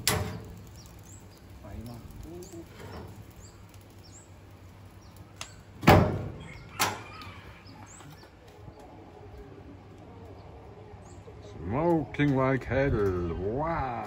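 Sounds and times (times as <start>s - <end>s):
oven door clunking: 0.0s - 0.5s, 5.8s - 7.0s
birds chirping: 0.0s - 14.0s.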